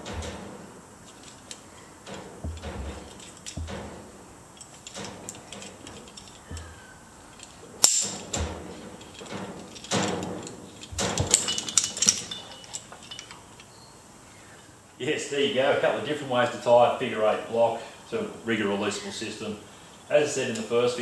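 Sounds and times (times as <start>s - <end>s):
rope rustling: 0.0s - 13.7s
climbing hardware clicking and clinking: 0.0s - 13.8s
metal clicks and jingling: 1.0s - 13.8s.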